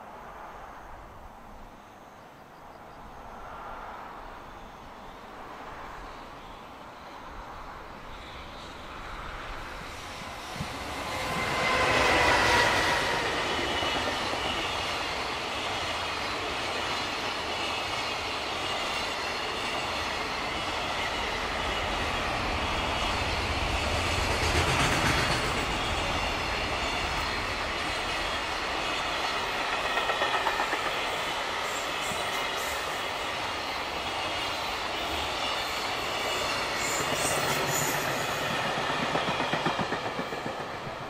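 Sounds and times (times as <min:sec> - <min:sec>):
electric locomotive passing: 0:00.0 - 0:41.0
train wagons rumbling: 0:09.4 - 0:31.2, 0:33.8 - 0:41.0
wheels clacking over rail joints: 0:35.9 - 0:41.0.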